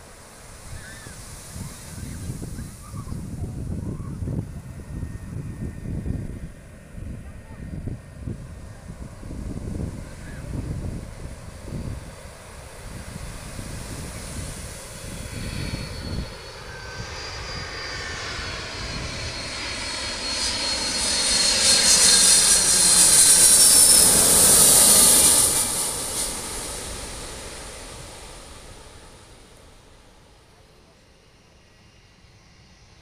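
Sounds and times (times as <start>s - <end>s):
high engine whine: 0.0s - 33.0s
jet airliner passing overhead: 0.0s - 33.0s.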